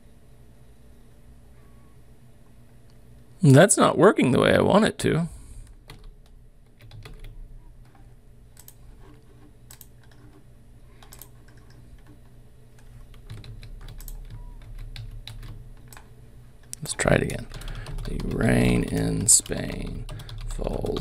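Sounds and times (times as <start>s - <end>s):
computer keyboard typing: 5.8s - 16.1s, 16.7s - 21.0s.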